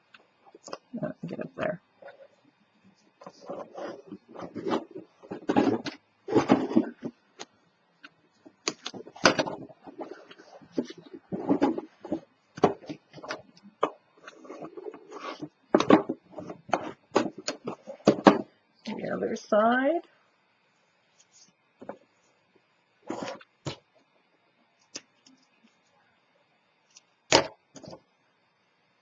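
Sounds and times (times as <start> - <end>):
paper rubbing and sliding: 3.3 - 5.5, 14.2 - 15.5, 23.0 - 23.4.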